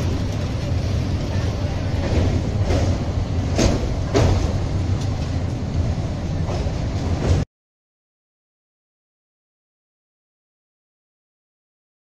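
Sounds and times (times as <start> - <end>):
train wheels rumbling on rails: 0.0 - 7.5
sharp rail clacks: 2.0 - 7.4.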